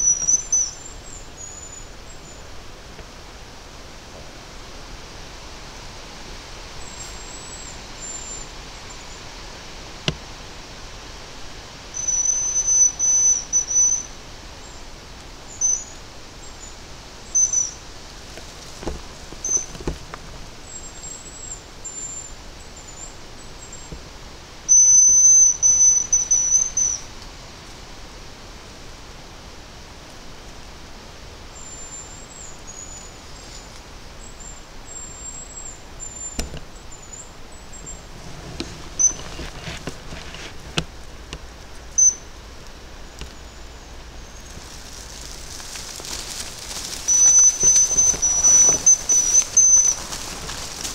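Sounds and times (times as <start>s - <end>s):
rustling in undergrowth: 0.0s - 24.7s, 31.3s - 50.9s
twigs snapping: 44.4s - 50.9s
high thin decoy whistles: 47.1s - 50.0s.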